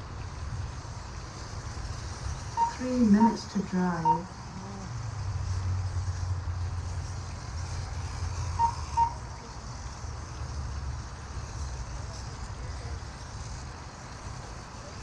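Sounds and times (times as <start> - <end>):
faint hiss: 0.0 - 15.0
low outdoor rumble: 0.0 - 15.0
short electronic beeps: 2.6 - 4.3, 8.6 - 9.2.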